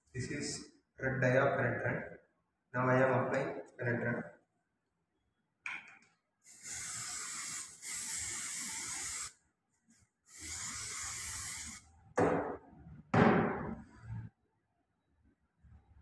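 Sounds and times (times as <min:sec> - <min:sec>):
aerosol can spraying: 0:06.4 - 0:09.4, 0:10.3 - 0:11.8.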